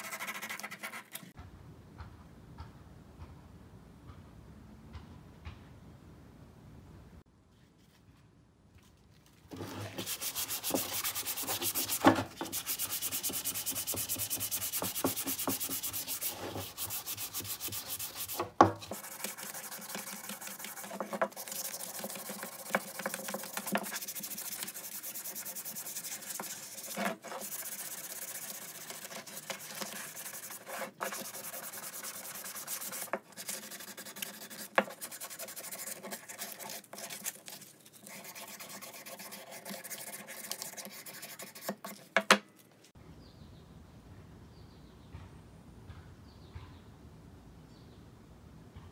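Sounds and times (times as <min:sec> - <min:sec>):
sandpaper rubbing wood: 0:00.0 - 0:01.2, 0:09.6 - 0:42.0.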